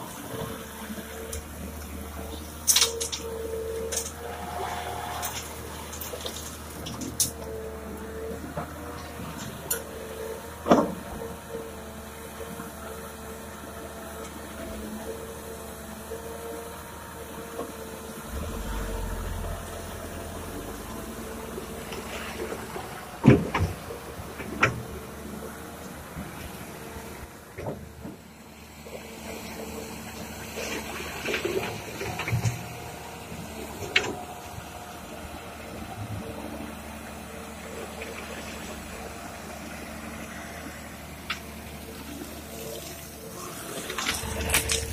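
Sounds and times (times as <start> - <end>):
diesel truck engine running: 14.8 - 27.5, 29.9 - 44.9.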